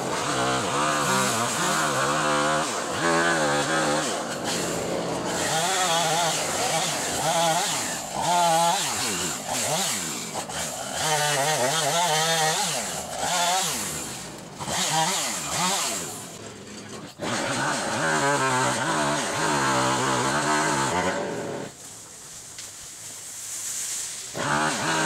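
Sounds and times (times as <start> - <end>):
chainsaw revving: 0.0 - 21.8, 24.3 - 25.0.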